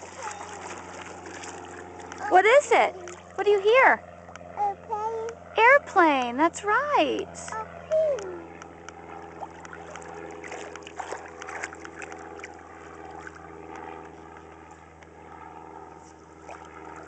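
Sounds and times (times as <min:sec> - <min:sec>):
feet splashing in shallow water: 0:00.0 - 0:03.4, 0:08.5 - 0:17.0
airplane engine drone: 0:00.0 - 0:17.0.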